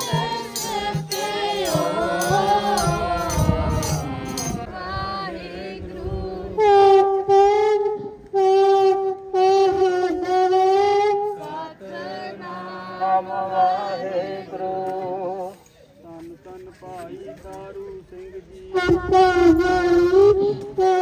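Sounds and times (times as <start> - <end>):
voices singing devotional chant: 0.0 - 8.2, 9.8 - 15.6.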